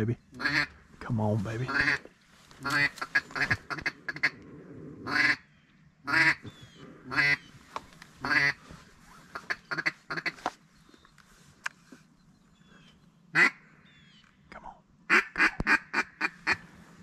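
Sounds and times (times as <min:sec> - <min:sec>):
duck call quacks: 0:06.1 - 0:06.4, 0:08.2 - 0:08.6, 0:13.4 - 0:13.6, 0:15.1 - 0:16.6.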